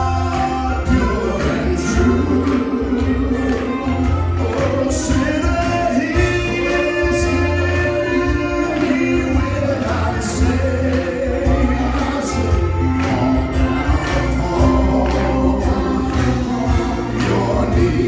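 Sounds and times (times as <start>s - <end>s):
men singing gospel song: 0.0s - 18.0s.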